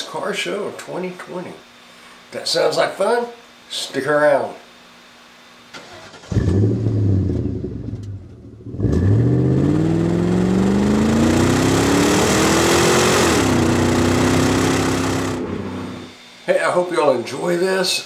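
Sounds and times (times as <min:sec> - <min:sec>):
car engine accelerating: 0:06.2 - 0:16.1.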